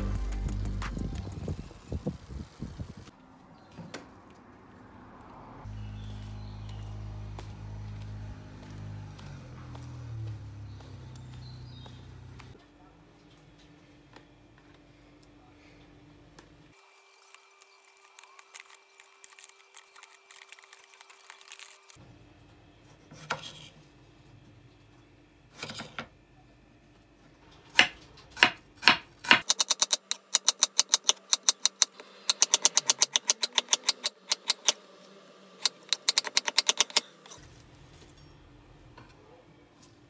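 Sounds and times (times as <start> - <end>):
knife chopping on wooden board: 27.8 - 31.8.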